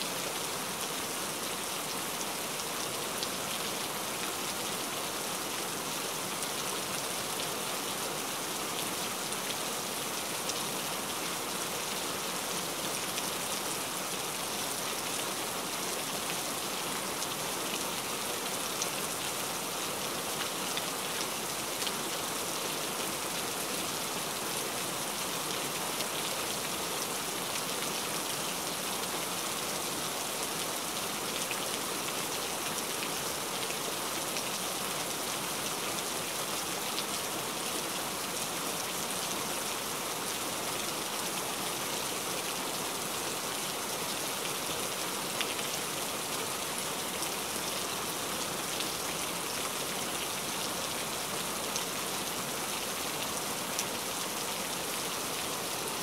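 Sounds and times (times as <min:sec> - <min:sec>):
steady rain: 0:00.0 - 0:56.0.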